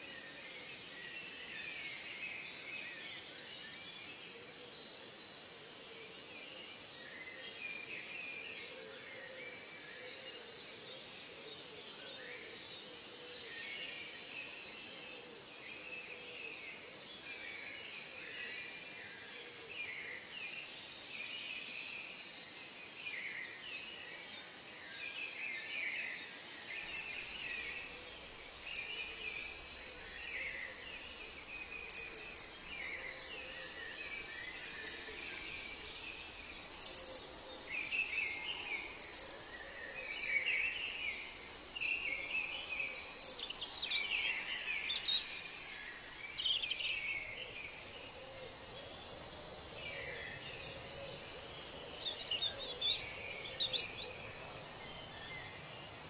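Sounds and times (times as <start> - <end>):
faint steady hiss: 0.0 - 56.0
birds chirping and calling: 26.9 - 56.0.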